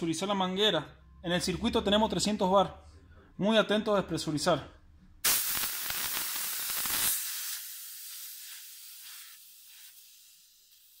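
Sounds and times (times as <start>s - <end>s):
high-pressure air hissing: 5.2s - 11.0s.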